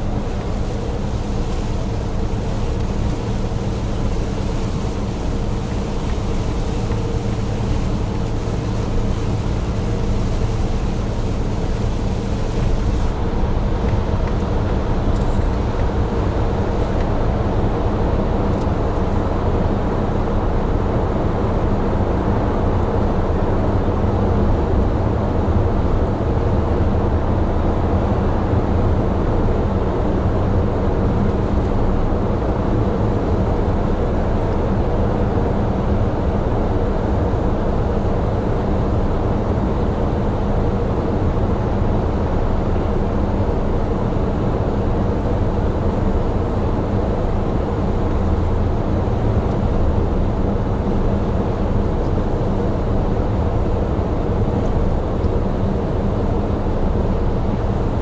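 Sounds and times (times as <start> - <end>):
tyre noise on wet road: 0.0 - 17.7.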